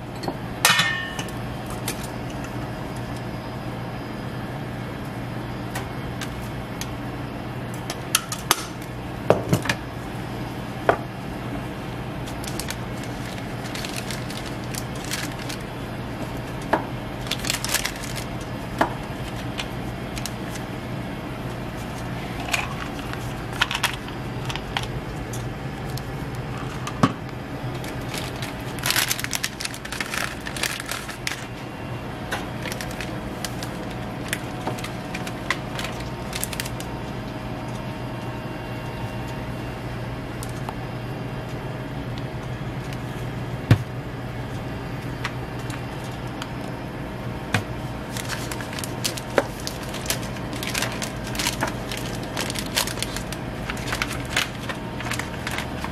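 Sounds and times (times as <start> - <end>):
paper rustling: 12.2 - 15.7, 17.2 - 20.7, 27.7 - 31.6, 32.6 - 36.9, 48.0 - 55.9.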